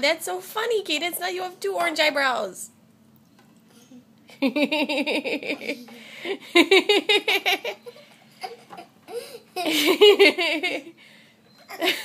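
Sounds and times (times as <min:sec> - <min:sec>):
woman giggling: 0:04.3 - 0:11.0, 0:11.7 - 0:12.0.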